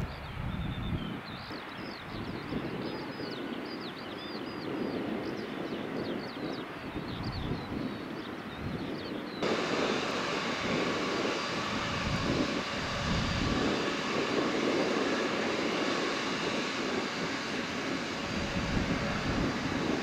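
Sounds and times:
jet engines running: 0.0 - 20.0.

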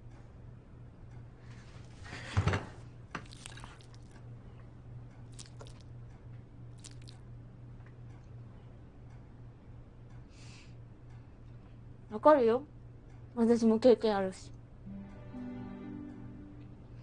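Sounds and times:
cake pulled apart and eaten: 6.8 - 7.2
steady low hum: 14.5 - 17.0.

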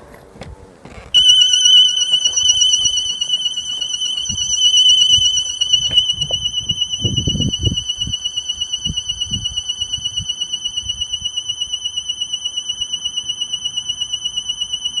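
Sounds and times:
low thumps: 1.2 - 8.2
warbling electronic alarm tone: 1.2 - 15.0.

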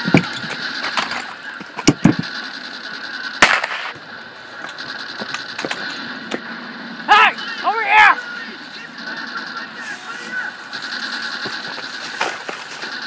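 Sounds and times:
gunshots: 0.0 - 4.0, 8.8 - 13.0.

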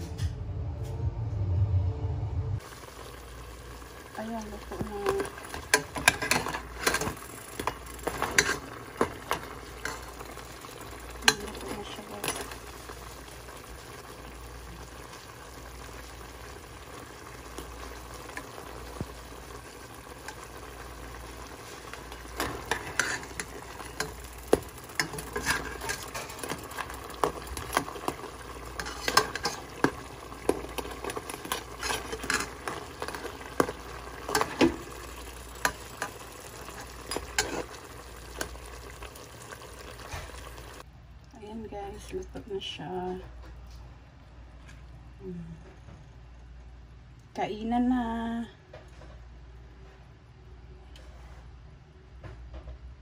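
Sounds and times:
crabs sizzling in a pot: 2.6 - 43.3
metal spoon scraping a pot: 5.5 - 10.1, 22.4 - 24.2, 25.0 - 26.7, 28.8 - 33.4, 35.6 - 37.8.

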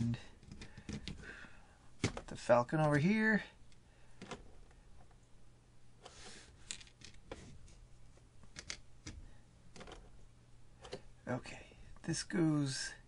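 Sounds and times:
low steady hum: 0.0 - 13.0
plastic bricks clicking: 8.5 - 10.1.

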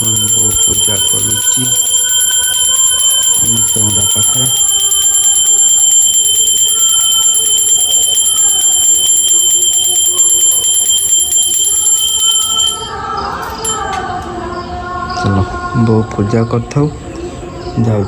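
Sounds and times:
hand bell ringing rapidly: 0.0 - 13.0, 13.6 - 13.9.

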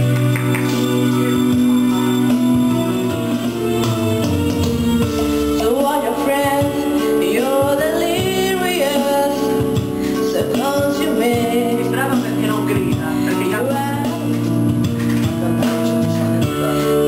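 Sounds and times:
instrumental accompaniment: 0.0 - 17.0
woman singing into microphone: 5.0 - 14.5.

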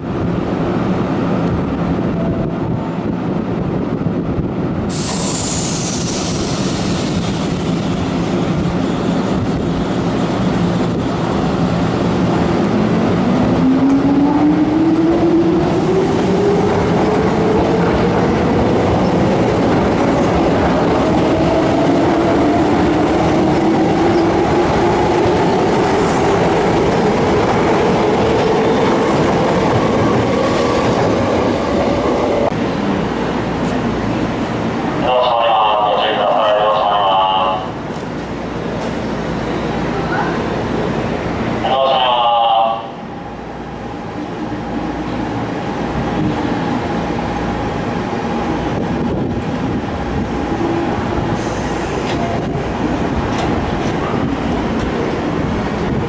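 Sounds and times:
wheel and rail noise: 43.8 - 56.0.

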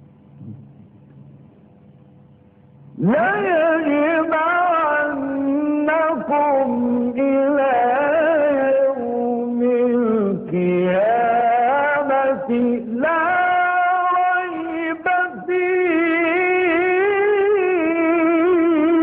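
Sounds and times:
man reciting in melodic chant: 3.0 - 19.0.

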